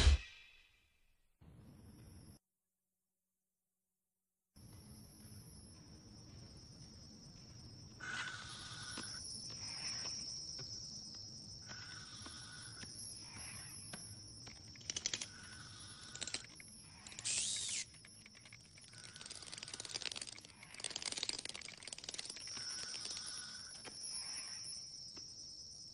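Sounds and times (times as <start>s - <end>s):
clicks and ticks: 13.9s - 24.0s
steady high-pitched whine: 15.8s - 18.8s.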